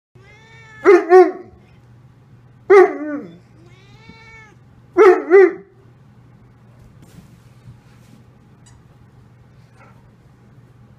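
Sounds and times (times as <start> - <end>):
dog whining barks: 0.7 - 1.6, 2.7 - 3.4, 5.0 - 5.8.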